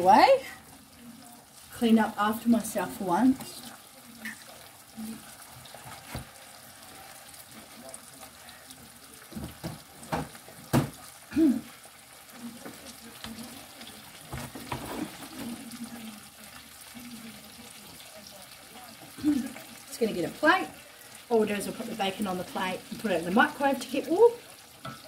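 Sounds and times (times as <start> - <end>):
kitchen items knocking and thudding: 9.3 - 11.0, 14.2 - 15.6.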